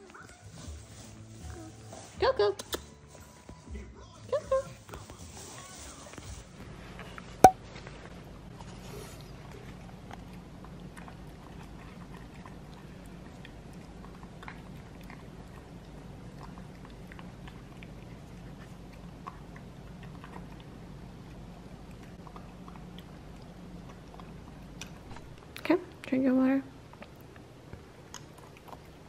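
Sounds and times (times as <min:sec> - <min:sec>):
dog chewing and lapping food: 0:06.2 - 0:26.1, 0:26.8 - 0:29.0.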